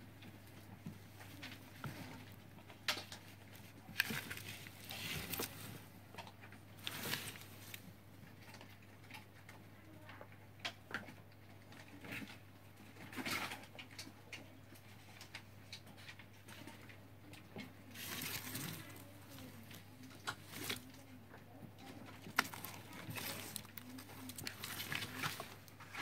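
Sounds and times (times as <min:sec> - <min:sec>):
soft rustles and light knocks: 0:00.0 - 0:08.0, 0:15.8 - 0:26.0.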